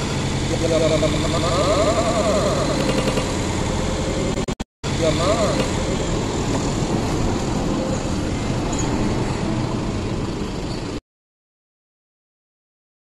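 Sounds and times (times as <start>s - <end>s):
motorcycle engine idling: 0.0s - 4.0s.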